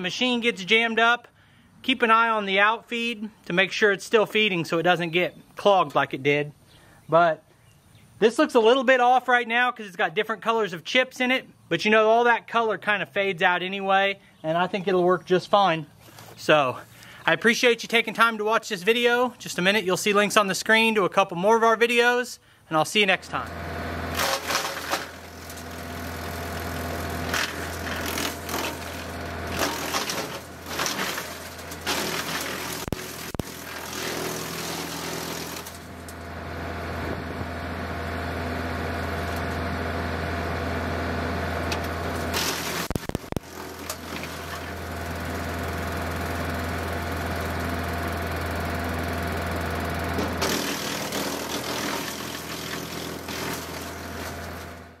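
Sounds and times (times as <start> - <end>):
diesel tractor engine running: 23.2 - 55.0
wood chipper cracking and crunching: 23.4 - 55.0.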